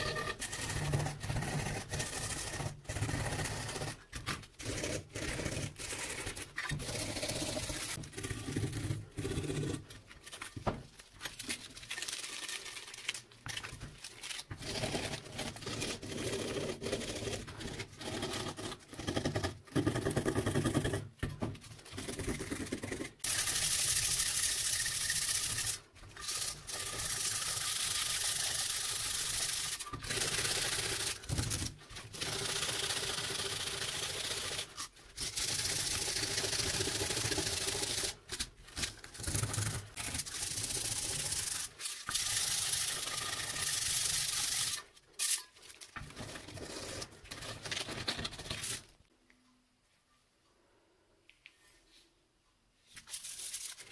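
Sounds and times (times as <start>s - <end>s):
sandpaper rubbing metal blade: 23.2s - 31.2s.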